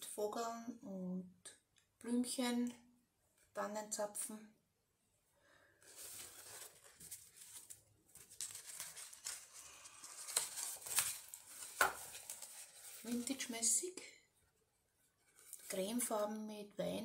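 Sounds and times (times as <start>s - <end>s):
paper rustling and scraping: 5.8s - 13.7s, 15.2s - 16.1s.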